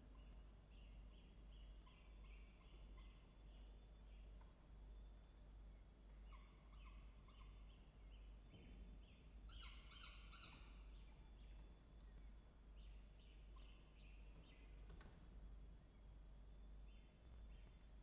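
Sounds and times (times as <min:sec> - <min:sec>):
low steady hum: 0:00.0 - 0:18.0
faint bird calls: 0:06.1 - 0:14.8.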